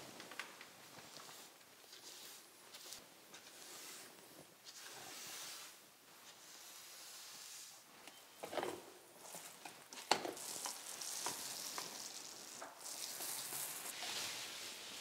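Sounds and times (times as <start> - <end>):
paint roller hissing strokes: 0.9 - 7.9, 10.4 - 15.0.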